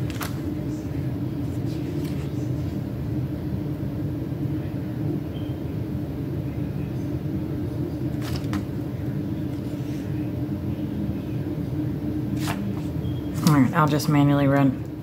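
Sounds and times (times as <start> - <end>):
paper sheets crinkling: 0.0 - 0.6, 1.4 - 2.8
steady low hum: 0.0 - 15.0.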